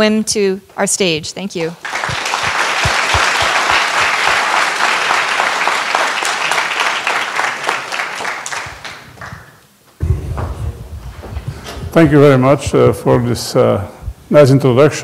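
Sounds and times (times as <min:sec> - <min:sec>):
audience applauding: 0:01.8 - 0:09.6.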